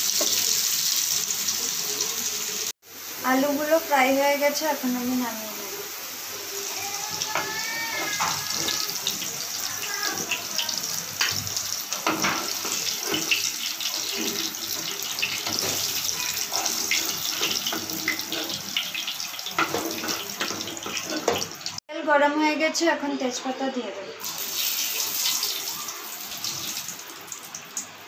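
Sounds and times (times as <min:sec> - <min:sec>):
oil sizzling in frying pan: 0:00.0 - 0:21.8, 0:24.2 - 0:28.0
metal spoon scraping pan: 0:12.0 - 0:18.7.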